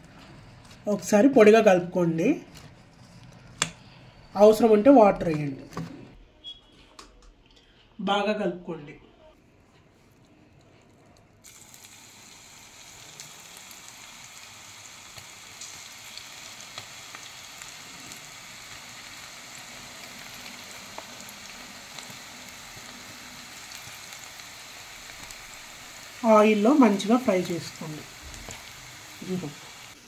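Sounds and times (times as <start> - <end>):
oil crackling: 9.9 - 30.0
battered food deep-frying in oil: 10.0 - 30.0.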